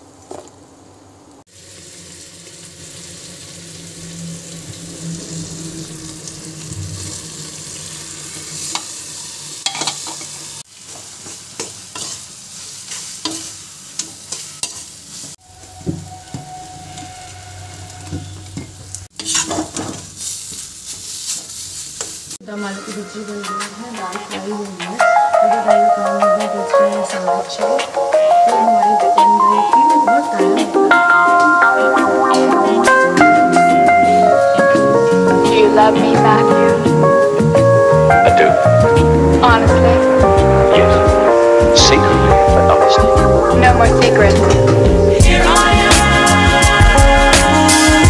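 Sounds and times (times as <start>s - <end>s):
food sizzling in oil: 1.5s - 48.0s
spatula scraping a pan: 11.2s - 12.3s, 12.9s - 22.3s.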